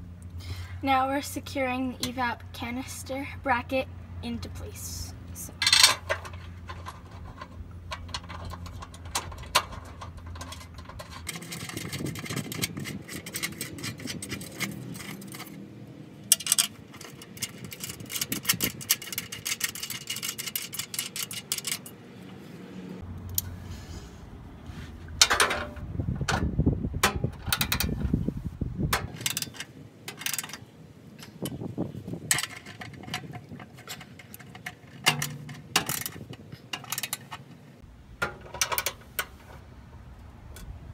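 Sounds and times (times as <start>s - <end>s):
metal clinks and clicks: 16.3s - 22.0s.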